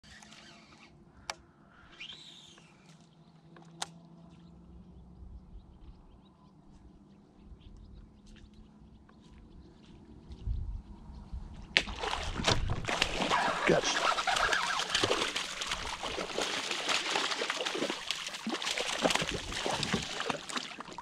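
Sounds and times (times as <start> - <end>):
fish striking water: 11.8 - 21.0.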